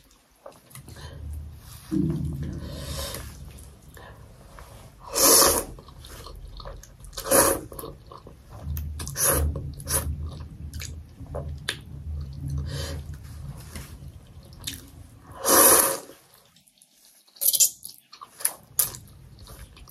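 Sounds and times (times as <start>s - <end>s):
person slurping noodles: 1.7s - 3.7s, 4.5s - 6.4s, 7.1s - 8.0s, 9.0s - 10.2s, 15.3s - 16.2s.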